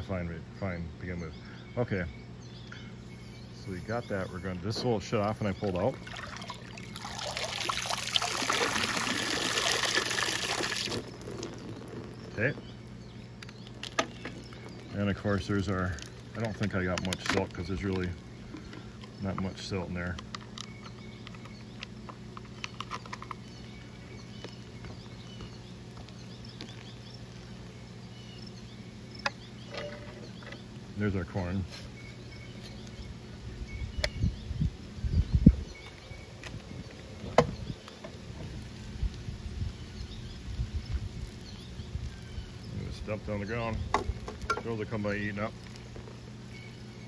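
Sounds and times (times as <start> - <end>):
steady low hum: 0.0 - 47.0
water pouring and trickling: 5.8 - 12.4.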